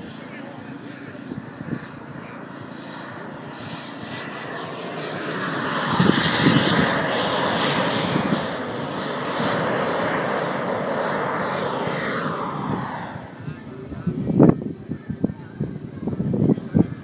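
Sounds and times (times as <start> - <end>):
model jet turbine passing: 0.0 - 17.0.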